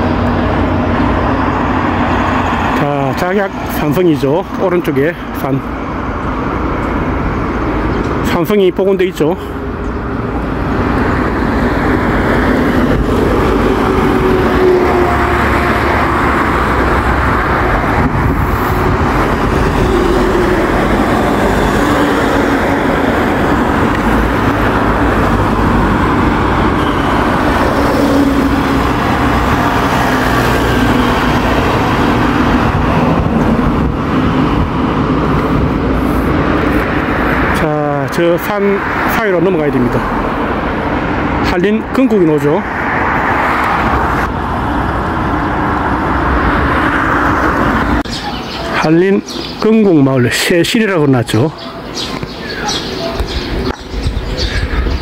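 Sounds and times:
cars passing: 0.0 - 55.0
heavy low rumble: 9.6 - 37.5.

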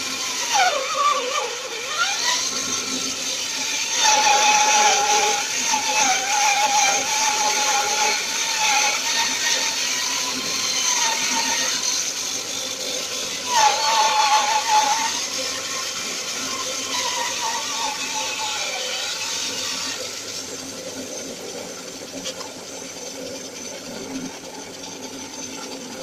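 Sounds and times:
bandsaw cutting wood: 0.0 - 20.1.

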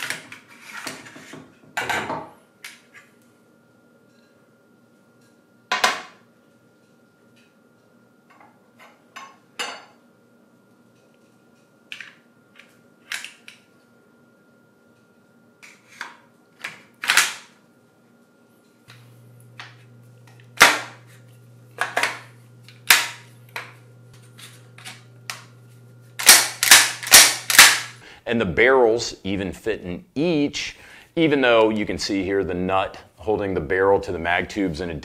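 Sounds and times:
low hum: 18.9 - 28.6.

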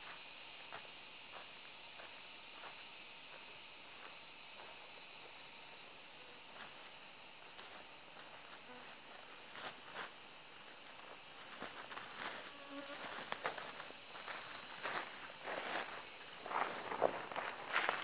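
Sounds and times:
forest insects droning: 0.0 - 18.0
footsteps crunching on dry leaves: 7.5 - 18.0.

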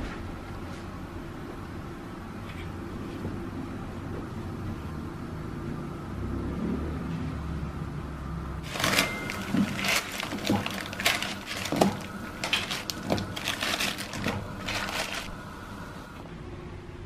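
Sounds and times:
plastic wrappers crinkling: 8.6 - 16.1.

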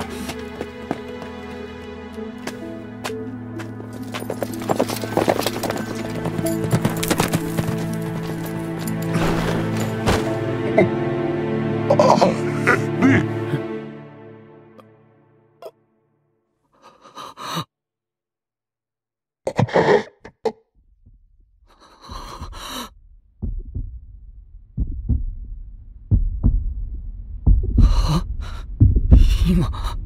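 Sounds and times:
person gasping and breathing: 16.8 - 17.7, 21.7 - 22.9, 27.8 - 30.0
heavy heartbeat thumps: 20.9 - 30.0
low rumble: 22.5 - 30.0.

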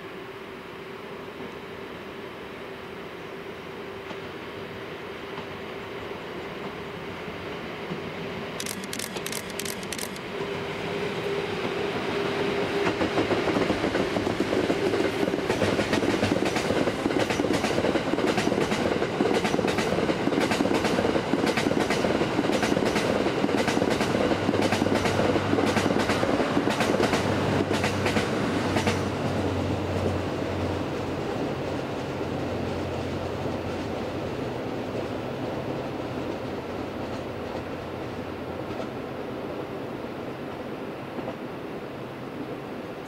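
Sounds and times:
electric locomotive humming: 0.0 - 43.0.

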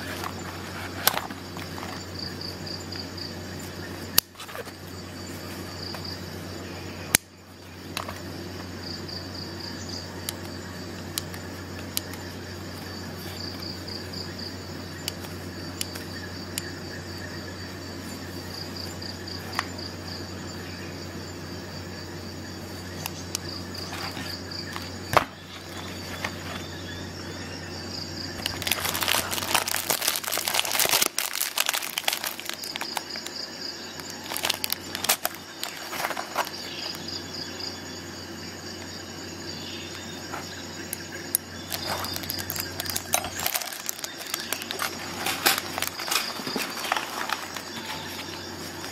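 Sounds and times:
rustling and scraping: 0.0 - 2.6, 3.6 - 6.2, 23.7 - 26.8, 28.4 - 37.2, 40.0 - 40.9, 41.5 - 48.9.

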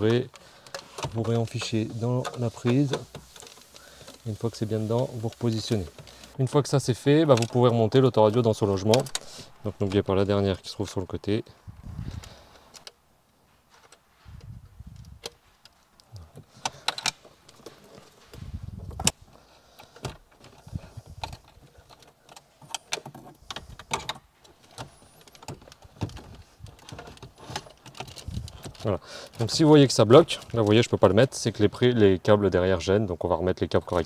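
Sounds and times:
plastic clicks and rattles: 0.0 - 4.6, 7.2 - 9.3, 14.9 - 31.4.

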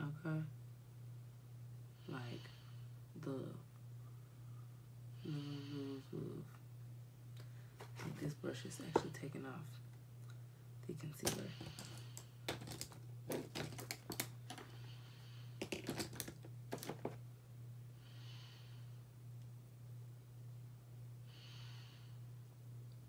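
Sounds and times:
steady low hum: 0.0 - 23.0
soft breaths: 1.9 - 3.0, 4.0 - 6.6, 11.2 - 12.5, 14.5 - 15.6, 18.0 - 19.0, 21.2 - 22.3
makeup cases clicking: 11.2 - 14.7, 15.6 - 17.2.

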